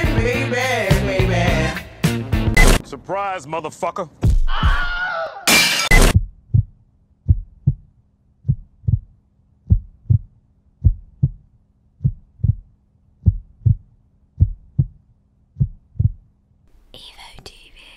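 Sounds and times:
heartbeat thumps: 5.9 - 16.3.

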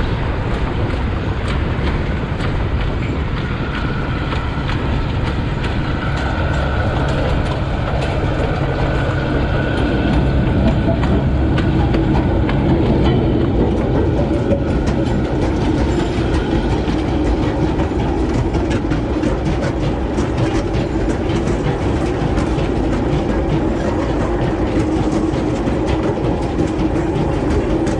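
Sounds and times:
wagon wheels clicking over rail joints: 0.0 - 27.9
wagons rumbling on track: 0.0 - 27.9.

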